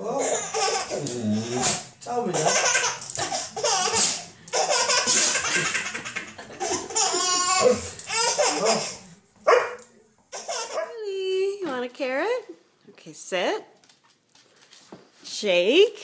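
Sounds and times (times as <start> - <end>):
baby laughing: 0.2 - 9.1, 10.3 - 10.9.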